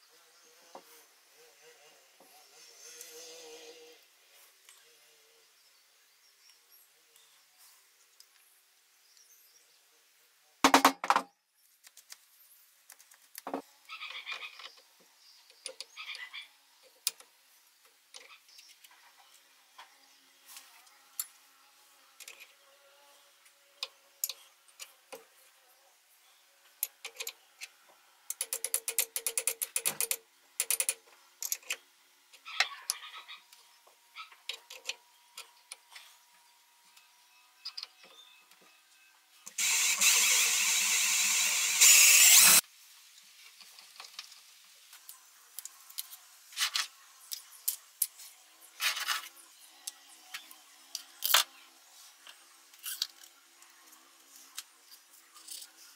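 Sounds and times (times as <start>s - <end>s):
rapid ratchet clicking: 28.3s - 31.7s, 39.6s - 42.6s
clicks and taps on metal parts: 28.3s - 31.8s.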